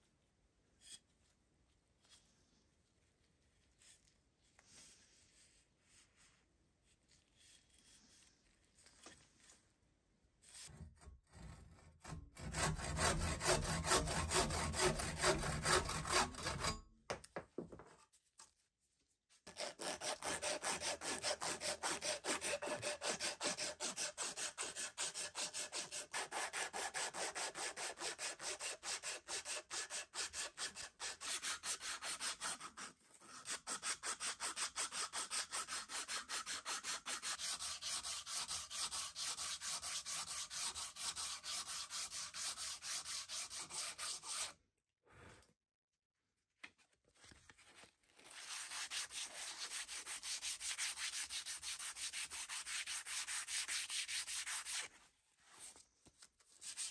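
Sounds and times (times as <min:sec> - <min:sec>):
handsaw cutting wood: 0:10.7 - 0:16.8, 0:19.5 - 0:44.6, 0:48.4 - 0:54.9
sandpaper rubbing on wood: 0:19.6 - 0:44.5, 0:48.4 - 0:54.9.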